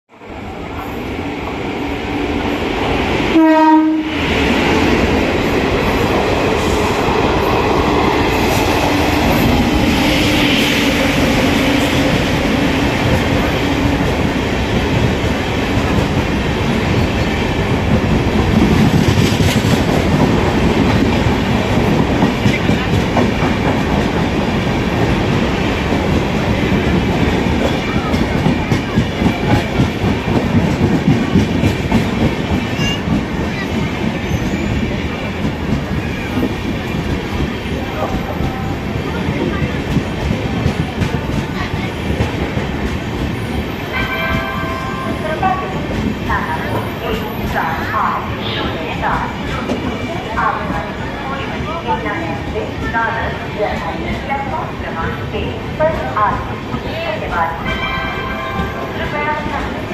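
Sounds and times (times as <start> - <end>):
train coaches rumbling past: 0.2 - 59.9
locomotive horn: 3.3 - 4.1.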